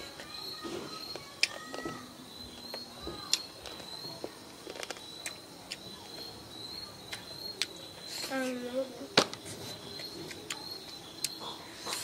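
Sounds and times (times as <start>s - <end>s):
children chewing: 0.0s - 12.0s.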